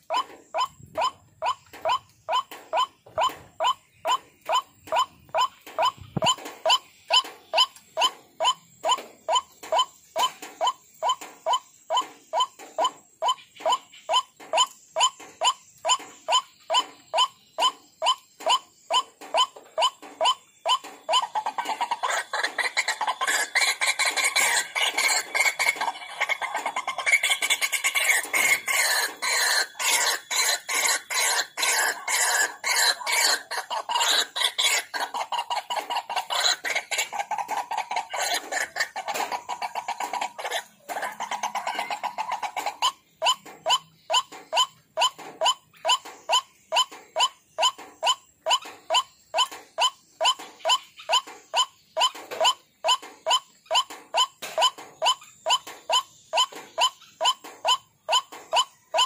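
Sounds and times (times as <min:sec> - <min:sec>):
waterhen calling harsh notes: 0:00.0 - 0:59.0.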